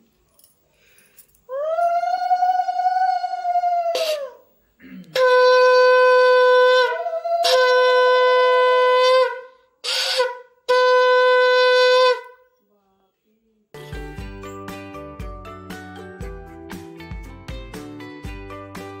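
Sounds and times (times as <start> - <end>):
conch shell blasts: 5.2 - 12.4.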